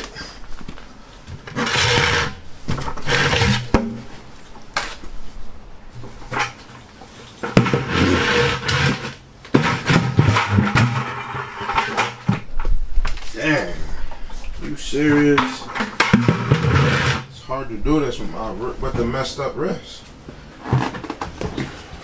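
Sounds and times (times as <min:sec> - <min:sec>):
plastic bucket scraping and knocking: 0:01.4 - 0:04.1, 0:07.4 - 0:12.7, 0:15.2 - 0:17.3, 0:20.6 - 0:21.8.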